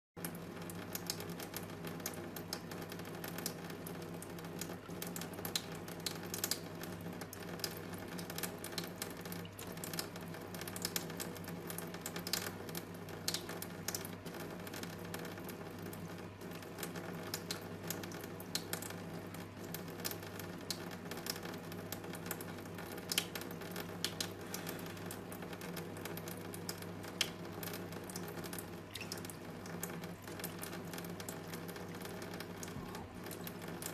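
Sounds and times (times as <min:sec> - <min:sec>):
tap water splashing into sink: 0:15.9 - 0:33.9.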